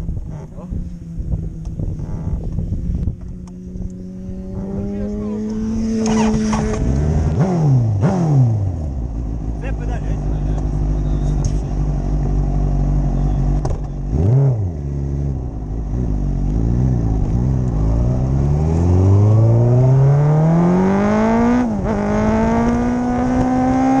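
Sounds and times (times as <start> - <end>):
motorcycle engine revving: 0.0 - 24.0.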